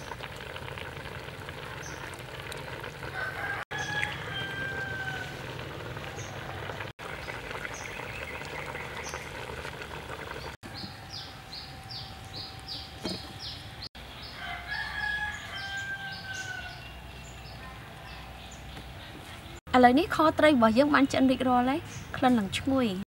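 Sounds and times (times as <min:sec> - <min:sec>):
rooster crowing: 0:03.0 - 0:05.7, 0:14.2 - 0:17.0
background hum: 0:04.0 - 0:20.2.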